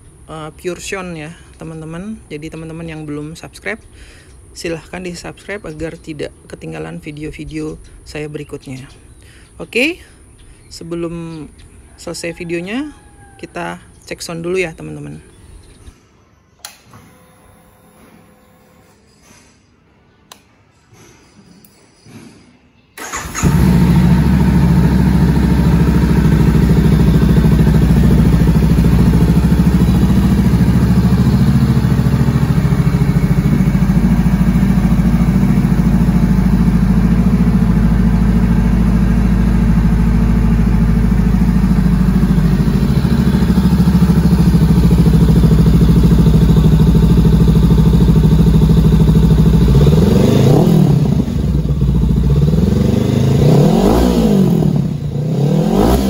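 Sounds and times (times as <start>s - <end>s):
motorcycle engine idling: 23.0s - 56.0s
motorcycle engine revving: 23.0s - 56.0s.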